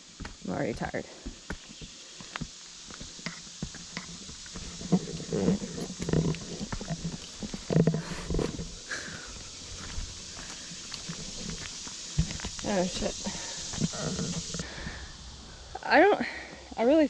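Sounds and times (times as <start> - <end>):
footsteps on dirt path: 0.0 - 14.6
heavy hoarse breathing: 4.4 - 12.4, 13.1 - 16.7.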